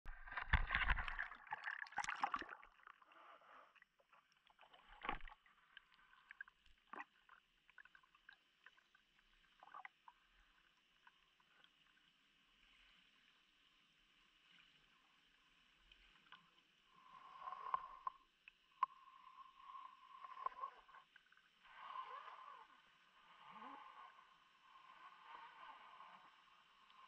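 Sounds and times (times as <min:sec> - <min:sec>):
clicks and knocks underwater: 0:00.0 - 0:08.8
faint underwater hiss: 0:12.5 - 0:27.0.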